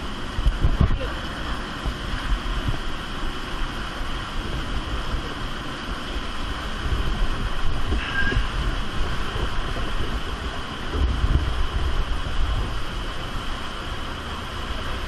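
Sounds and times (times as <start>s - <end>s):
cave stream rushing: 0.0s - 15.0s
faint high tone: 8.0s - 8.5s.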